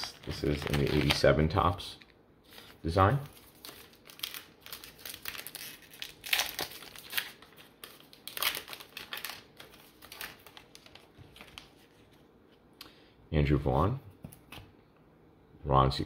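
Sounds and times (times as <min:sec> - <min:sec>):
plastic wrapper crinkling: 0:00.0 - 0:12.2.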